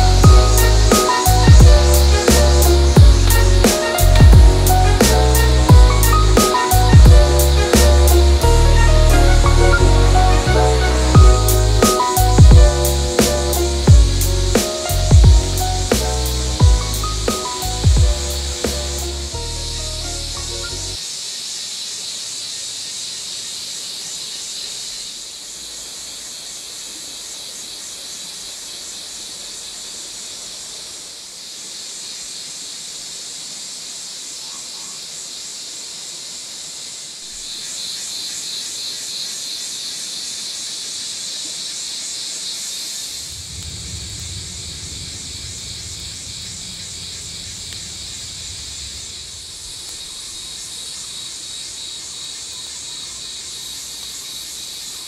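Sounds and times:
low rumble: 0.0 - 21.0, 43.2 - 49.7
insects buzzing: 0.0 - 55.0.

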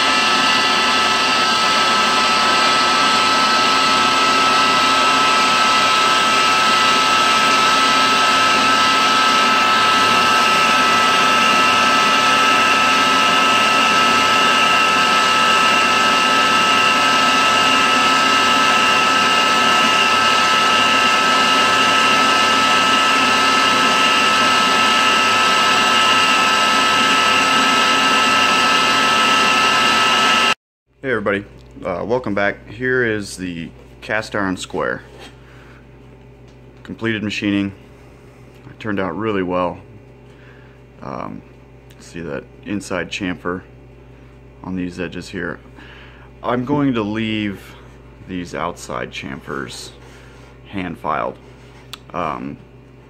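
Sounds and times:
milling machine whine: 0.0 - 30.6.

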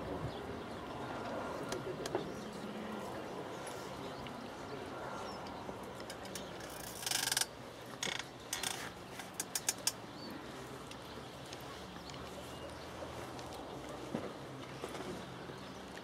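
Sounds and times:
faint outdoor background: 0.0 - 16.0
sharp clicks: 6.0 - 10.0.

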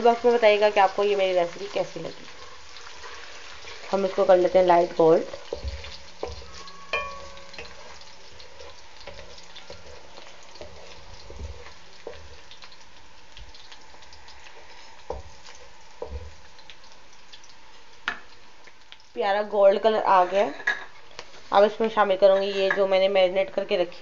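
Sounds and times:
paste sizzling in hot oil: 0.0 - 22.8
wooden spatula knocking pan: 5.4 - 8.0, 16.0 - 16.4.

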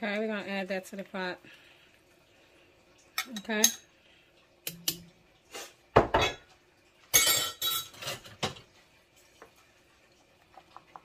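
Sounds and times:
spoon and dishes clinking on pot: 3.2 - 3.9, 6.0 - 6.5, 7.1 - 8.7.

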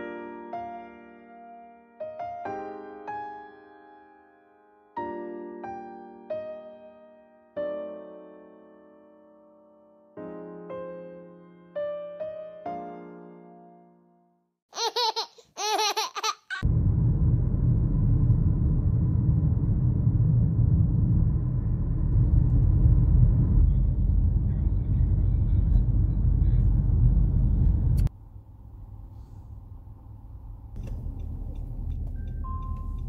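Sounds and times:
child laughing squeals: 14.7 - 16.6
car road and engine rumble: 16.6 - 33.0.

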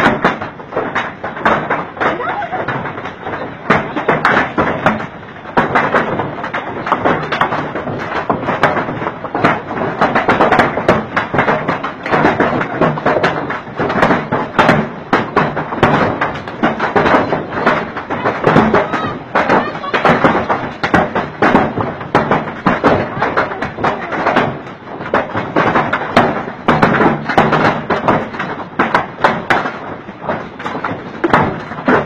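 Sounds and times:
hail clattering on hard surfaces: 0.0 - 32.0.

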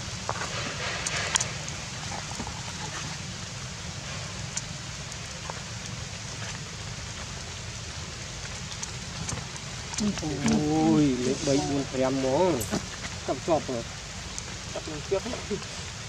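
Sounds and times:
outdoor background hiss: 0.0 - 16.0
faint ticks: 8.4 - 10.2, 14.2 - 14.6.

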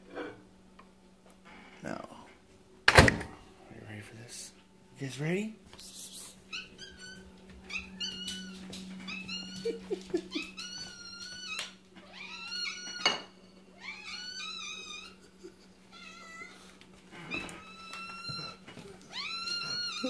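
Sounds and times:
cats meowing: 6.2 - 20.0.

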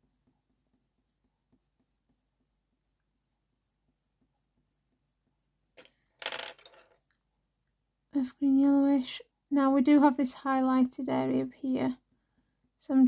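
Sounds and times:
pencil scratching on paper: 0.0 - 5.8, 9.8 - 13.0.

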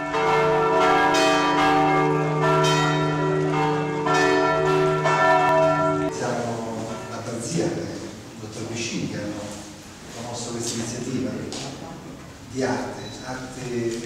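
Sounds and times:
church bells ringing: 0.0 - 9.3.

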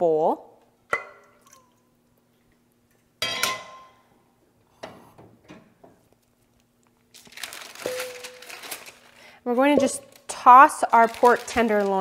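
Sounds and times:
rustling handling noise: 6.0 - 12.0.

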